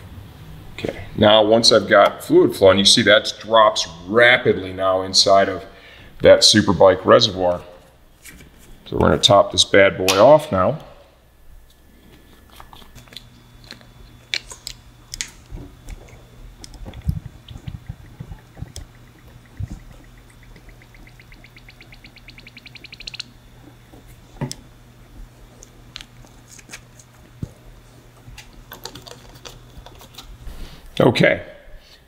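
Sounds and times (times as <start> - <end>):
steady low hum: 0.0 - 32.0
rapid ticks rising in pitch: 15.8 - 23.7.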